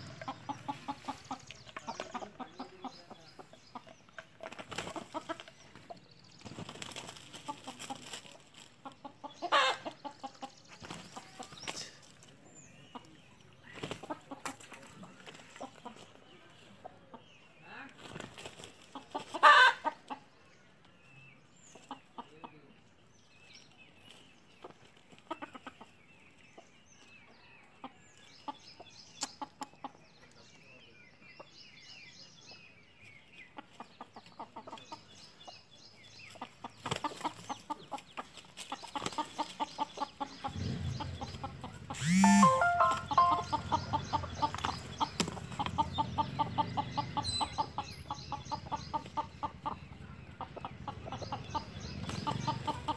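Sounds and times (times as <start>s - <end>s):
hens clucking and squawking: 0.0s - 12.2s, 12.9s - 17.2s, 18.0s - 20.3s, 24.6s - 26.6s, 33.5s - 35.4s, 36.3s - 52.9s.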